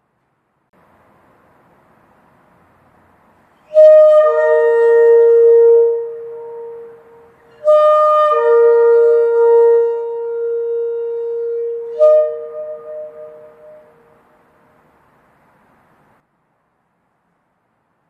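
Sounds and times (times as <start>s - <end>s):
shofar blasts: 3.7s - 14.2s.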